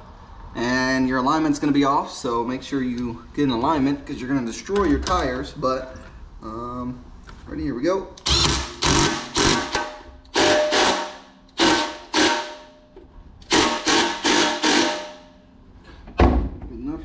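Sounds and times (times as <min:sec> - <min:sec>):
impact wrench hammering: 0:08.2 - 0:15.4.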